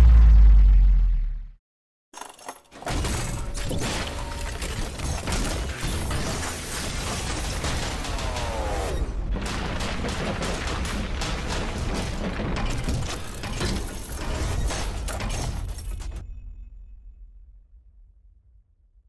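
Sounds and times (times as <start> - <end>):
low rumble: 0.0 - 1.6
mechanical metal clattering: 2.2 - 16.2.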